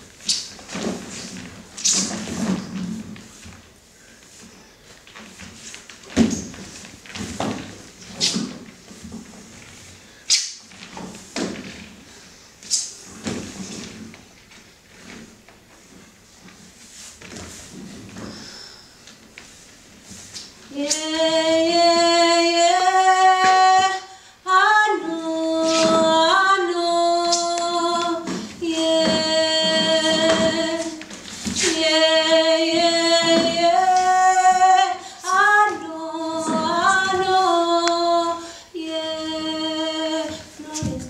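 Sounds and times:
woman singing long held notes: 0:20.7 - 0:31.0, 0:31.6 - 0:41.0.

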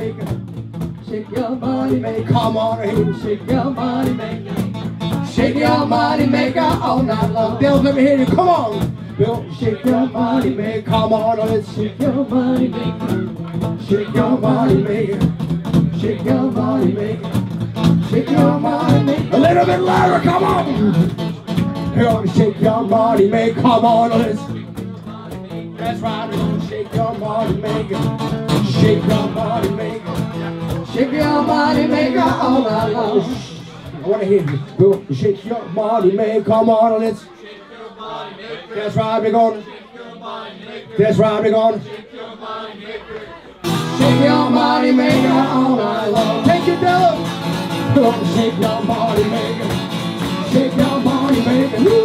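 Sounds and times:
cajon beating rhythm: 0:00.0 - 0:37.0, 0:43.6 - 0:52.0
strummed acoustic guitar: 0:00.0 - 0:37.0, 0:43.6 - 0:52.0
person singing: 0:18.1 - 0:21.2, 0:30.9 - 0:33.5, 0:43.7 - 0:47.2, 0:47.9 - 0:52.0.

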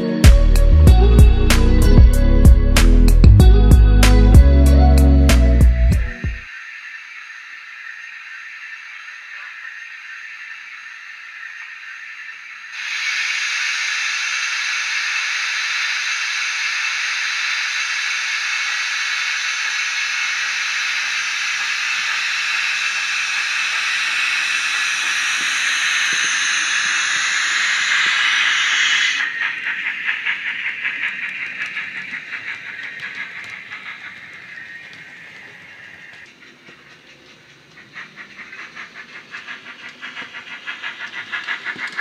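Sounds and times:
rhythmic steam exhaust beats: 0:00.0 - 0:42.0
steam hiss from small speaker: 0:00.0 - 0:42.0.

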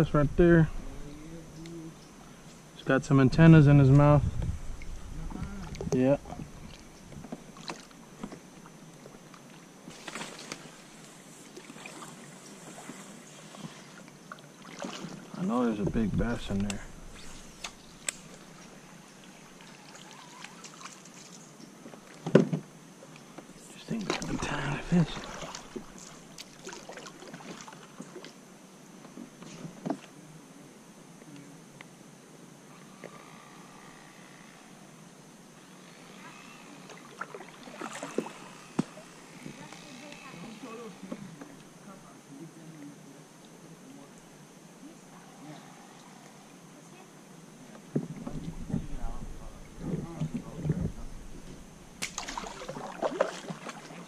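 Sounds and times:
water along a kayak hull: 0:00.0 - 0:54.0
paddle swishing through water: 0:24.0 - 0:28.3, 0:48.1 - 0:54.0
paddle knocking against hull: 0:47.9 - 0:53.7.

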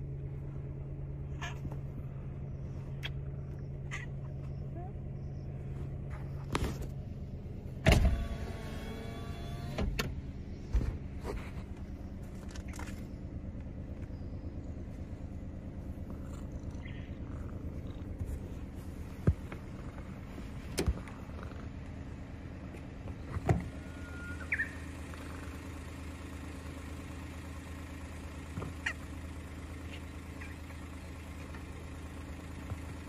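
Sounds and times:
car idling hum: 0:00.0 - 0:33.0.

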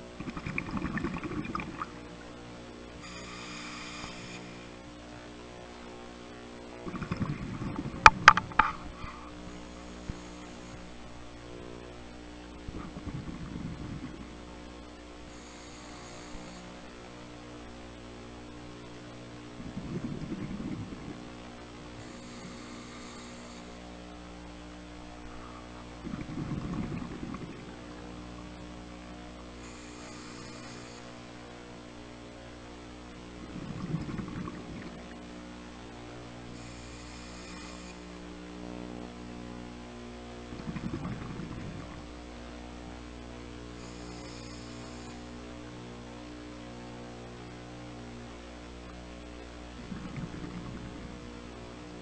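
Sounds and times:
steady hum: 0:00.0 - 0:52.0
thin high whine: 0:00.0 - 0:52.0
exhaled air bubbling: 0:00.1 - 0:02.3, 0:06.7 - 0:09.4, 0:12.6 - 0:14.7, 0:19.5 - 0:21.9, 0:25.2 - 0:28.8, 0:33.4 - 0:35.4, 0:40.4 - 0:42.3, 0:49.6 - 0:52.0
regulator hiss on inhale: 0:03.0 - 0:04.9, 0:06.9 - 0:11.3, 0:12.7 - 0:17.3, 0:19.6 - 0:24.3, 0:25.0 - 0:31.7, 0:36.3 - 0:38.4, 0:43.7 - 0:45.4.

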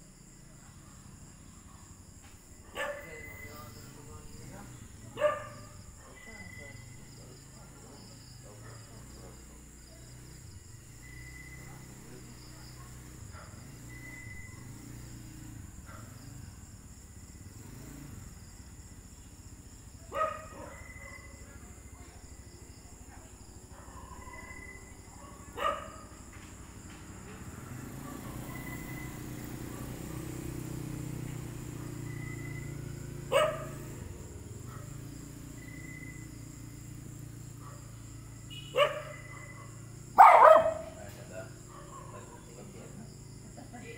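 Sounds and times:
night insects droning and chirping: 0:00.0 - 0:43.9
dog barking: 0:02.6 - 0:03.5, 0:05.1 - 0:06.5, 0:08.5 - 0:09.1, 0:12.7 - 0:14.8, 0:15.8 - 0:16.2, 0:20.1 - 0:22.1, 0:23.2 - 0:26.4, 0:27.7 - 0:30.3, 0:33.2 - 0:36.3, 0:37.5 - 0:42.8.

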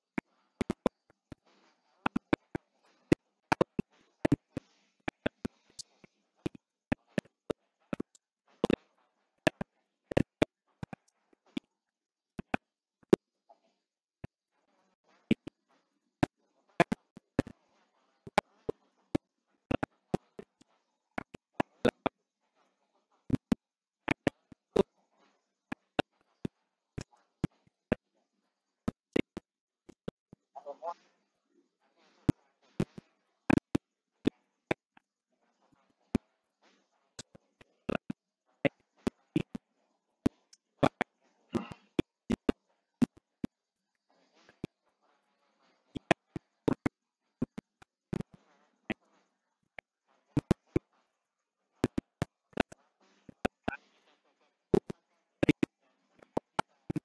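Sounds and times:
faint murmuring: 0:30.6 - 0:31.1.

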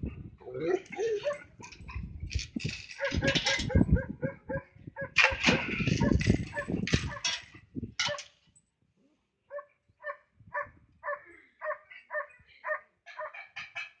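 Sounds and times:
dog barking: 0:01.1 - 0:01.5, 0:03.0 - 0:07.3, 0:09.5 - 0:13.4
dog yipping: 0:01.2 - 0:01.4, 0:03.0 - 0:07.3, 0:09.5 - 0:13.4.

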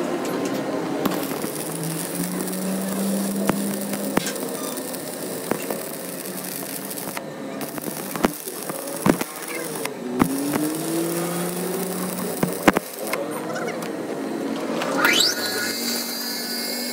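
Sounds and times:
arc welding crackling hiss: 0:01.0 - 0:13.2.

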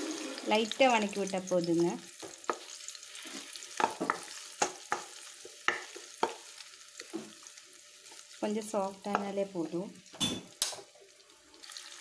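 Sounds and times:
banana slices sizzling in oil: 0:00.0 - 0:12.0
wooden spatula scraping a pan: 0:02.5 - 0:04.3.

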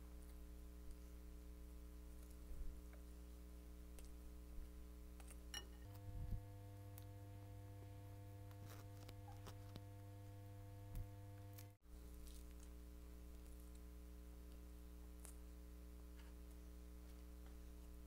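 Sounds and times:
low electrical hum: 0:00.0 - 0:18.0
close-miked eating and chewing: 0:11.8 - 0:15.5.

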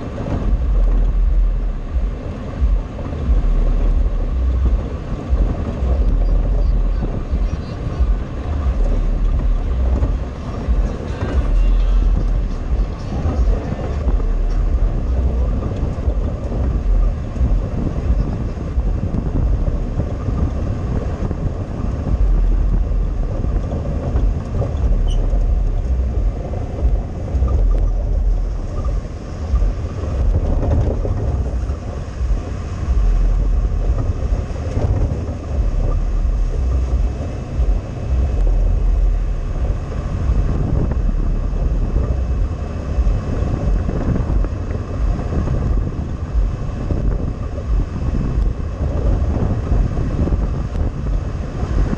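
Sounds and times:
air buffeting camera: 0:00.0 - 0:51.9
road noise rumble: 0:00.0 - 0:51.9
vehicle engine running: 0:00.0 - 0:51.9.

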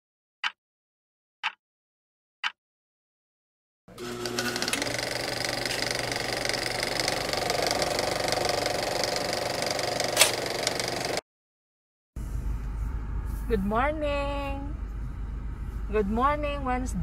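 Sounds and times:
film projector clatter: 0:03.9 - 0:11.2.

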